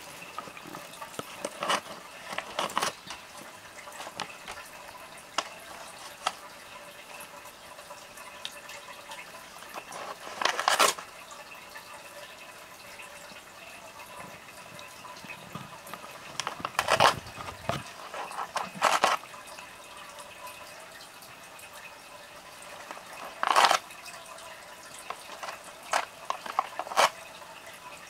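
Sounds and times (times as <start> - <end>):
paper crinkling: 0.0 - 6.5, 9.6 - 11.1, 15.2 - 19.2, 22.6 - 23.9, 24.9 - 27.2
cat tearing and chewing paper: 0.1 - 6.6, 9.5 - 11.1, 15.2 - 19.3, 22.5 - 24.2, 24.8 - 27.3.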